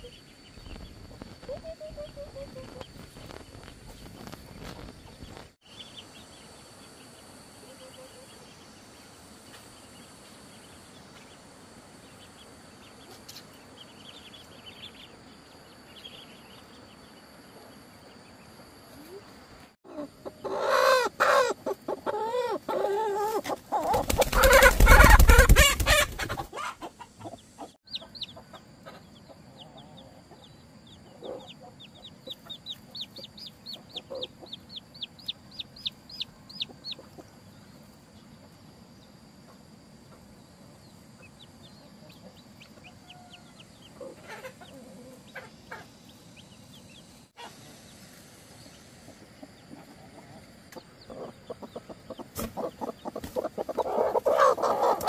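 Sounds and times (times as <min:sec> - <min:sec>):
chickens clucking and squawking: 0:00.0 - 0:05.5, 0:18.7 - 0:55.0
chicks peeping: 0:00.0 - 0:06.3, 0:19.9 - 0:38.7, 0:39.4 - 0:55.0.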